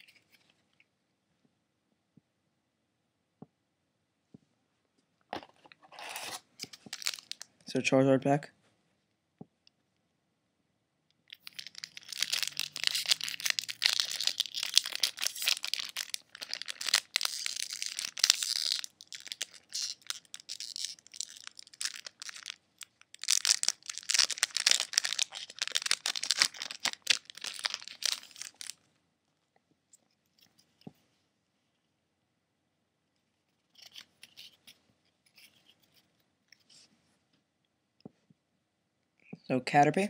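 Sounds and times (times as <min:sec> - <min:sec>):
foil wrapper crinkling and tearing: 0:06.7 - 0:07.4, 0:11.3 - 0:28.8.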